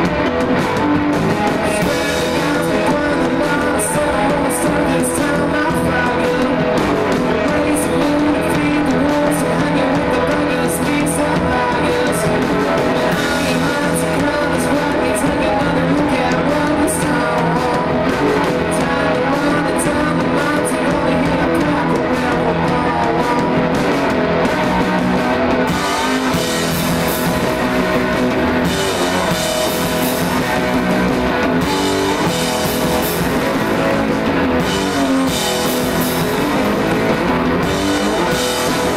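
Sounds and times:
distorted electric guitar: 0:00.0 - 0:38.9
live rock band playing: 0:00.0 - 0:38.9.

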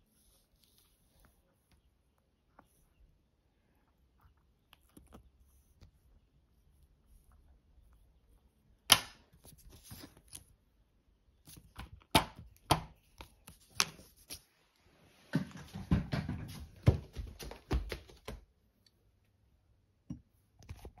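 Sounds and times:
rustling and knocking: 0:15.3 - 0:18.4.

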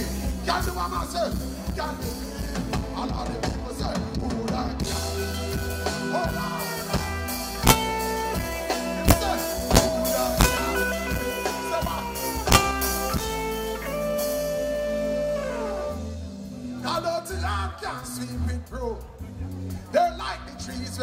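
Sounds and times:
live band holding chords: 0:00.0 - 0:21.0
sharp drum hits: 0:07.6 - 0:08.4, 0:09.1 - 0:10.9, 0:12.5 - 0:13.3.

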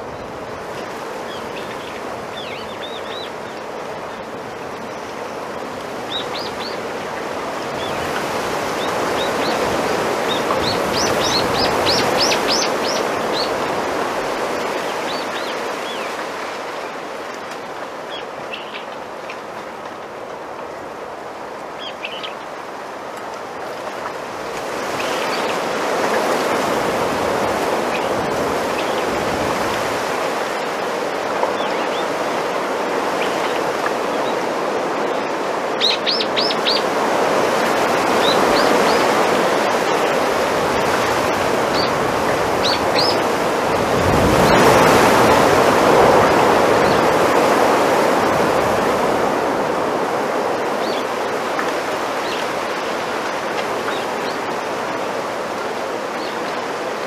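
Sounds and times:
wind rustling bamboo leaves: 0:00.0 - 0:57.0
small birds chirping: 0:08.8 - 0:13.7, 0:14.6 - 0:16.2, 0:18.1 - 0:19.0, 0:21.8 - 0:22.4, 0:35.8 - 0:36.9, 0:38.1 - 0:39.2, 0:42.6 - 0:43.2.

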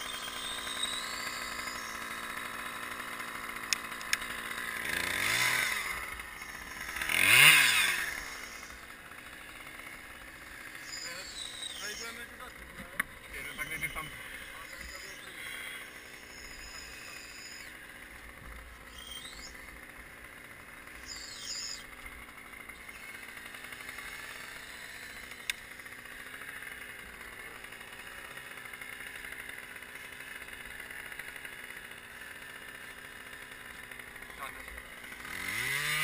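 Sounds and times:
bird whistling: 0:00.0 - 0:02.1, 0:10.8 - 0:12.3, 0:13.4 - 0:17.8, 0:18.8 - 0:19.6, 0:21.0 - 0:21.9
engine hum: 0:00.0 - 0:36.0.

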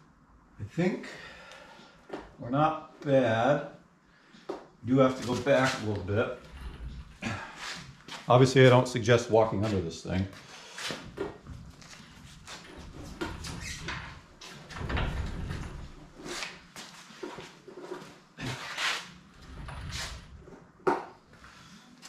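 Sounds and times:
knocks and scrapes: 0:10.8 - 0:21.1.

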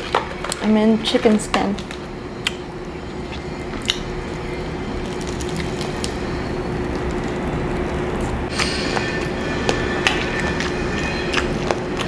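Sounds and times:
chewing crispy fried chicken: 0:05.0 - 0:06.2.

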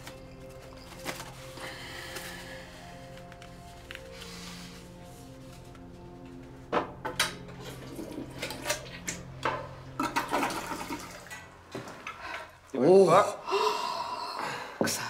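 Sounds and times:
kitchen water splashing and running: 0:10.1 - 0:11.5.

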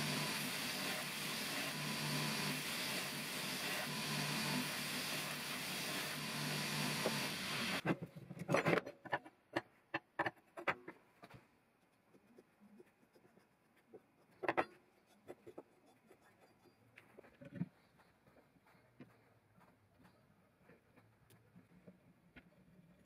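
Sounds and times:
belt grinder grinding steel: 0:00.0 - 0:07.8.

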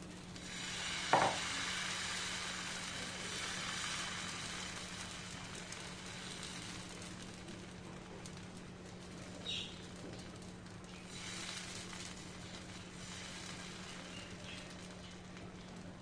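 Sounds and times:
batter sizzling in a frying pan: 0:00.0 - 0:16.0
ladle knocking on pan: 0:01.2 - 0:01.4.

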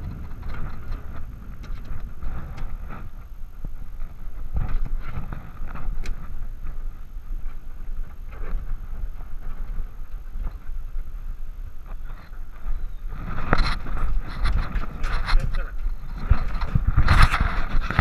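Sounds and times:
low handling rumble: 0:00.0 - 0:18.0
harness knocks and rustles: 0:12.1 - 0:18.0.

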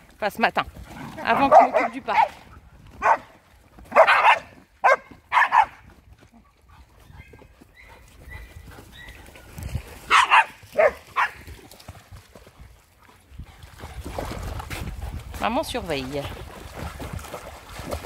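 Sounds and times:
dogs barking: 0:01.2 - 0:02.4, 0:03.0 - 0:03.3, 0:03.9 - 0:05.8, 0:10.1 - 0:11.4.

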